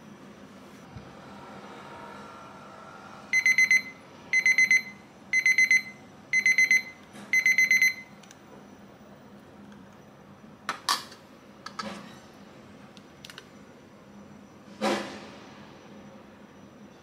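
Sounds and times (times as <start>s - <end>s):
kitchen timer beeping: 3.3s - 8.2s.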